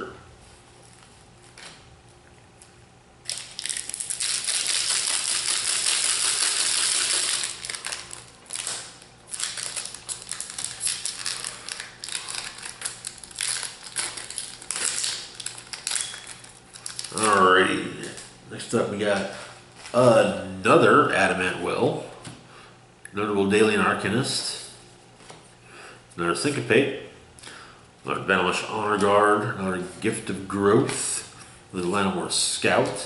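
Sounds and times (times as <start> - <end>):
foil wrapper crinkling: 3.2 - 18.3.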